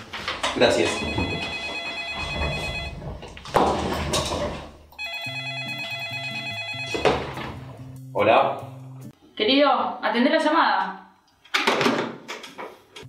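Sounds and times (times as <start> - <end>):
telephone ringing with electronic trill: 0.8 - 3.1, 5.0 - 7.4.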